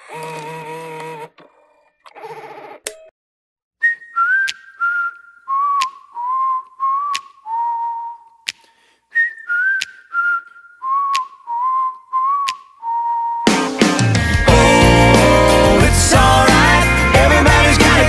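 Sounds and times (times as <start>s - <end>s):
person whistling a tune: 3.8s - 15.4s.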